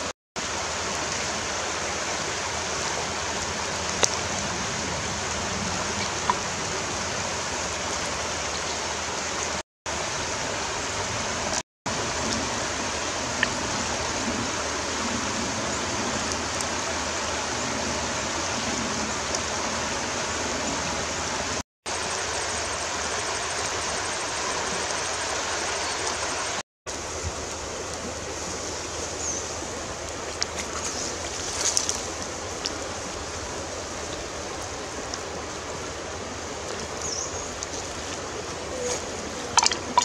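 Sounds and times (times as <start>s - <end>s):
rushing running water: 0.0s - 40.0s
small splashes: 27.3s - 40.0s.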